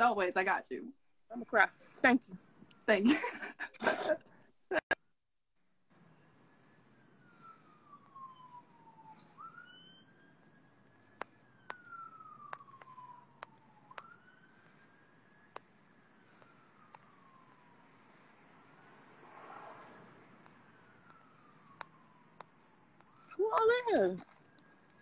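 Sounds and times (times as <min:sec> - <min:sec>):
faint siren wailing: 0:00.0 - 0:03.6, 0:05.9 - 0:25.0
sharp clicks: 0:12.5 - 0:14.1.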